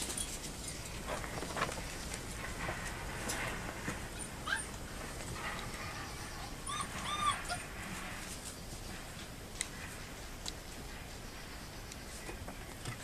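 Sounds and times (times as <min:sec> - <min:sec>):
puppies whining and yipping: 0:04.1 - 0:04.8, 0:05.5 - 0:07.8.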